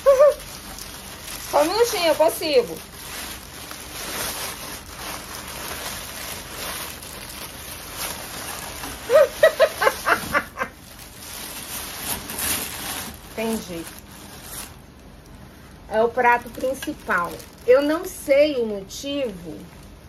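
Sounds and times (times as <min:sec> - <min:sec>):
packing paper rustling and crinkling: 0:00.0 - 0:20.0
woman's voice: 0:01.5 - 0:02.8, 0:13.4 - 0:13.9, 0:15.9 - 0:19.7.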